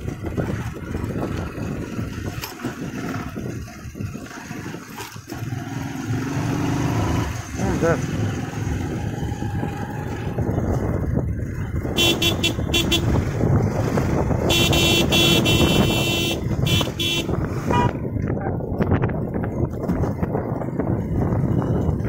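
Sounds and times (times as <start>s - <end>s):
engine and road rumble: 0.0s - 22.0s
vehicle horn honking: 12.0s - 13.2s, 14.5s - 18.0s.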